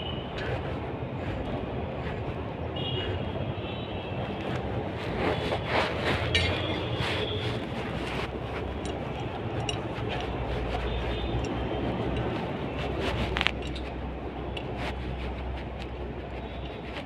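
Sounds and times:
machinery rumbling and humming: 0:00.0 - 0:17.0
light metal clicks: 0:08.7 - 0:10.4.

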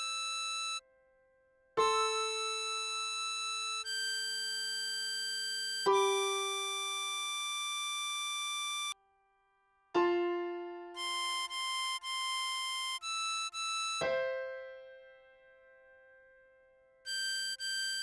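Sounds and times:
harmonica-like synth melody: 0:00.0 - 0:00.8, 0:01.8 - 0:09.0, 0:10.8 - 0:15.0, 0:17.1 - 0:18.0
keyboard chords: 0:01.8 - 0:04.2, 0:05.8 - 0:09.1, 0:09.9 - 0:18.0.

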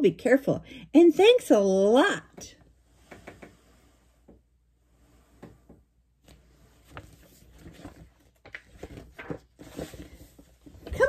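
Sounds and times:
soft rustles of handling: 0:02.5 - 0:11.0.

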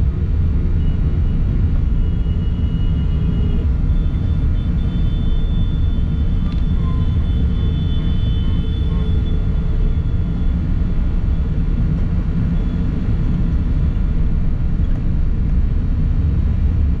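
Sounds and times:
vehicle engine and road rumble: 0:00.0 - 0:17.0
faint high whine: 0:00.8 - 0:11.4.

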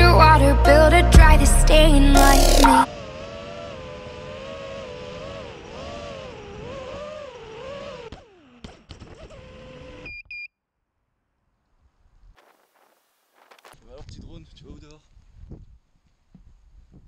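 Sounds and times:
drone motors whining: 0:01.7 - 0:10.2
short high beeps: 0:02.2 - 0:02.9.

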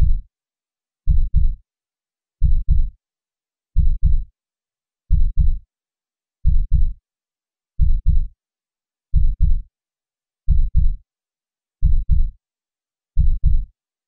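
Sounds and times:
heartbeat thumps: 0:00.0 - 0:00.2, 0:01.1 - 0:01.6, 0:02.4 - 0:02.9, 0:03.8 - 0:04.2, 0:05.1 - 0:05.6, 0:06.5 - 0:07.0, 0:07.8 - 0:08.3, 0:09.2 - 0:09.6, 0:10.5 - 0:11.0, 0:11.8 - 0:12.3, 0:13.2 - 0:13.7.

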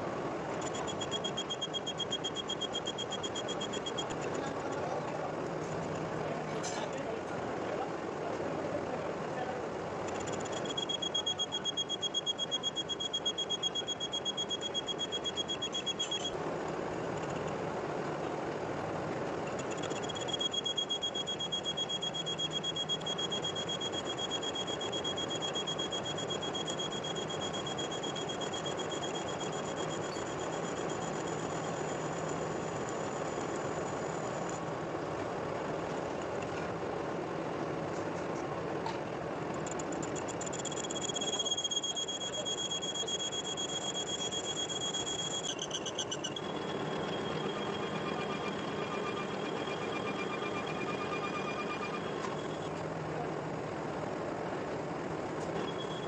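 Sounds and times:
high-pitched cutting squeal: 0:40.1 - 0:52.7.

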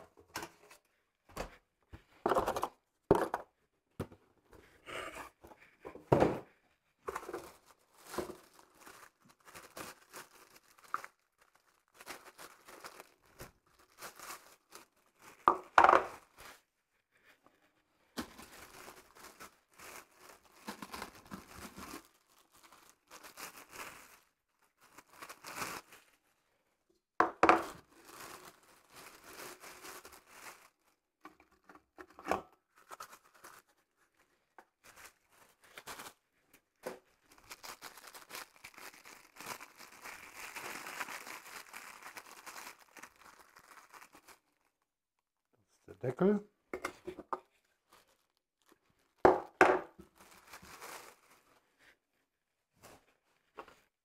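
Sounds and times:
plastic film crinkling and tearing: 0:07.1 - 0:16.6, 0:18.2 - 0:26.3, 0:27.6 - 0:44.9, 0:47.5 - 0:49.3, 0:49.9 - 0:52.0.

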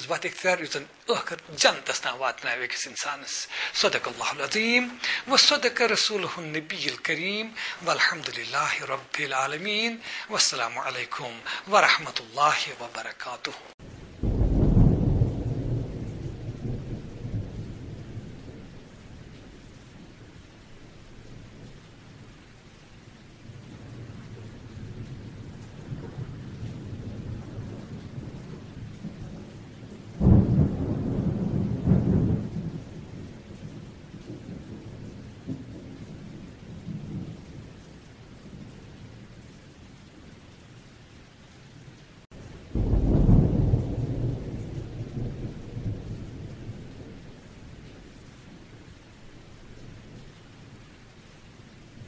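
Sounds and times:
thunder rumbling: 0:00.0 - 0:13.1, 0:13.7 - 0:22.6, 0:23.2 - 0:40.8, 0:41.7 - 0:52.0
rain hissing: 0:00.0 - 0:52.0.

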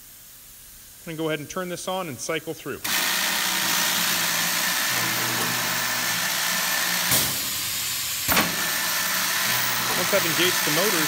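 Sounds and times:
drilling motors whirring: 0:02.8 - 0:11.0.

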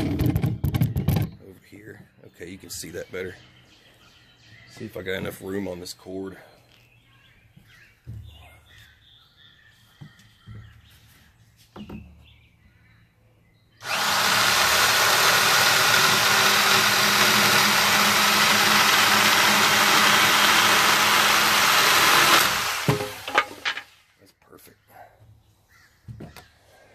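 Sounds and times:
circular saw cutting wood: 0:13.8 - 0:23.9.

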